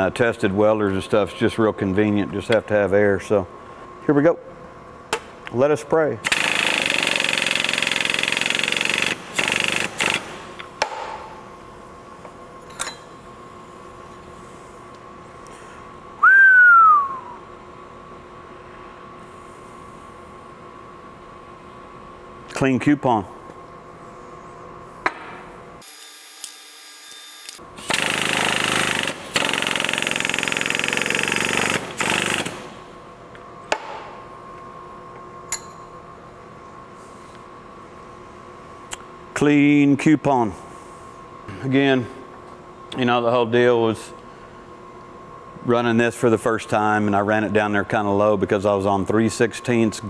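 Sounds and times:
hydraulic pump pulsing: 6.2 - 10.4.

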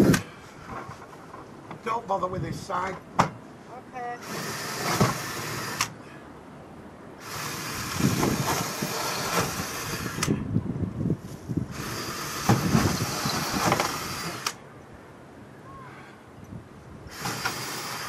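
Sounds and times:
power drill running: 4.2 - 5.9, 7.2 - 10.3, 11.7 - 14.6, 17.1 - 18.0.

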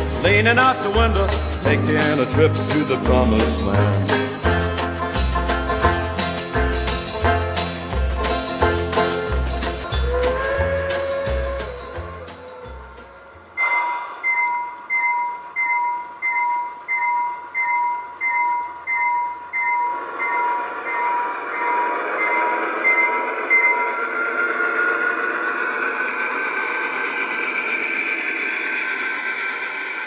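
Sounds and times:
locomotive running noise: 0.0 - 30.0
rising tone: 0.0 - 30.0
model locomotive bell ringing: 13.6 - 30.0.

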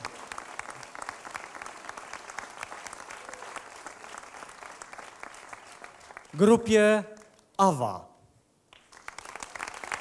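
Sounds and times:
audience applauding: 0.0 - 6.8, 8.8 - 10.0.

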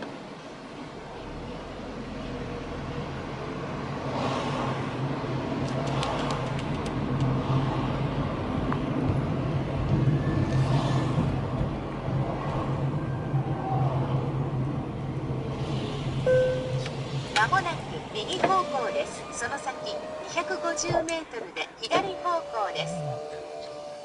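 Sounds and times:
car engine and road hum: 0.0 - 23.9
passing traffic: 0.0 - 24.0.

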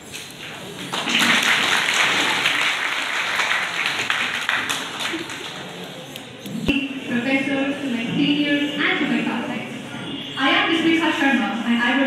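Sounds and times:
audience applauding: 0.8 - 5.9.

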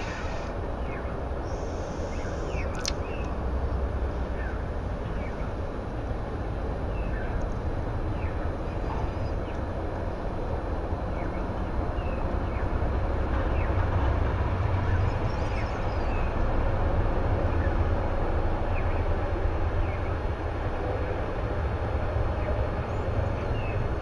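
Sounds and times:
small birds chirping: 0.0 - 3.4, 14.8 - 16.4
low outdoor rumble: 0.0 - 24.0.

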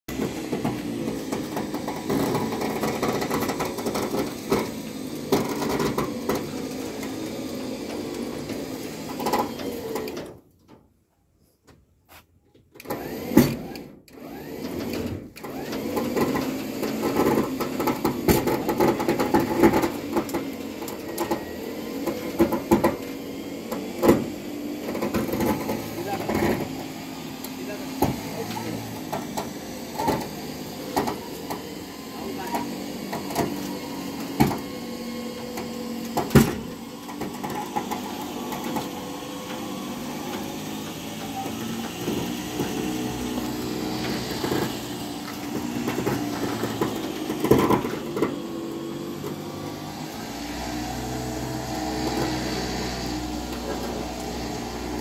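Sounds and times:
motor humming: 12.9 - 55.0.

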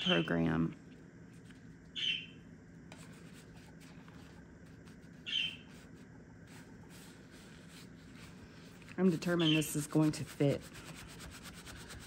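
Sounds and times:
hands rubbing paper: 2.9 - 12.0.

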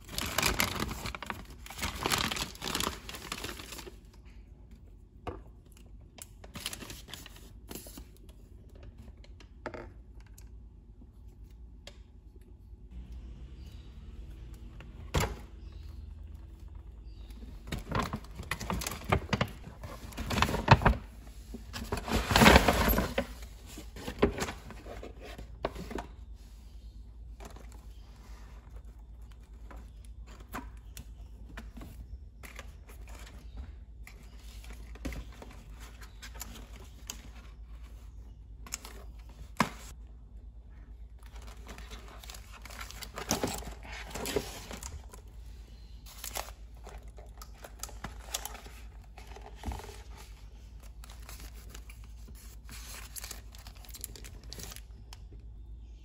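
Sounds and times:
paper bag rustling and crinkling: 0.0 - 4.0, 15.6 - 26.1, 41.2 - 55.0.

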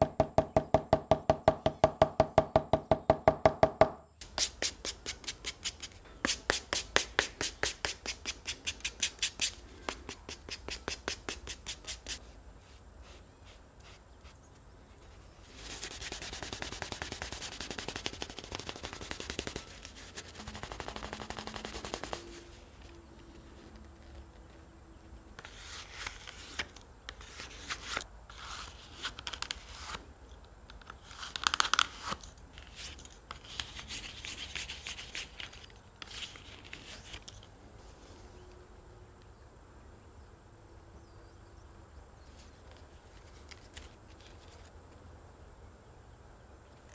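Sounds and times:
brisk rubbing on leather: 4.2 - 14.4, 15.4 - 22.6.

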